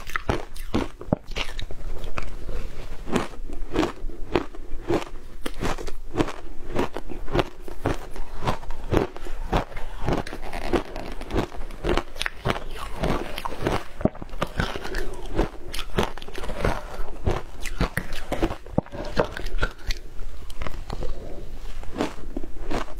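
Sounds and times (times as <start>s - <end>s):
crunching frozen ice: 3.0s - 20.0s.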